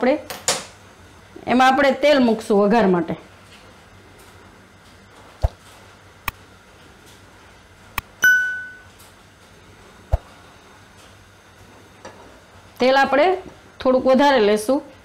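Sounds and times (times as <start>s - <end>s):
bell-like ding: 8.2s - 8.9s.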